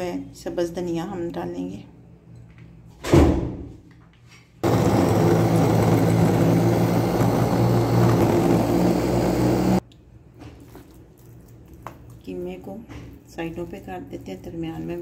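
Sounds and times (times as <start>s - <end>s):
thump: 3.0s - 3.6s
food chopper motor running: 4.6s - 9.8s.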